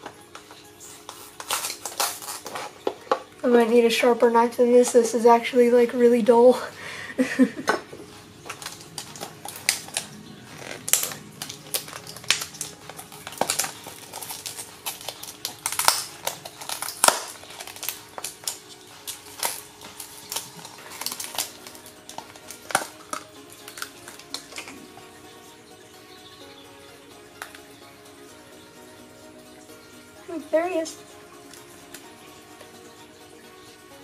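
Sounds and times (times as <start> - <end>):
plastic cup crackling: 0.0 - 3.8, 7.5 - 25.2.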